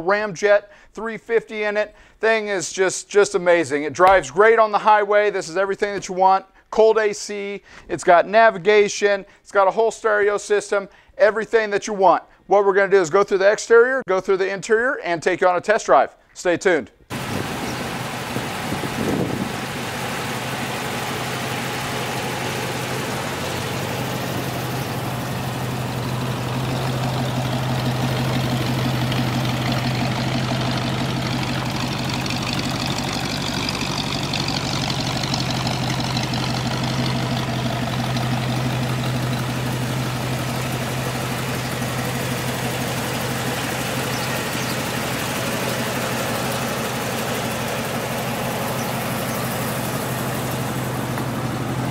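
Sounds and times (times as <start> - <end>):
engine idling: 17.1 - 51.9.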